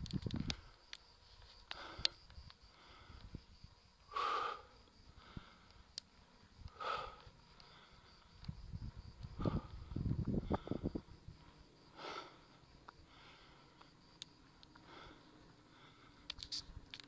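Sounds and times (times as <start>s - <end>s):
faint clicks: 0.0s - 3.4s, 5.2s - 9.5s, 12.8s - 15.2s, 15.8s - 17.0s
person breathing hard: 1.6s - 8.4s, 9.0s - 16.4s.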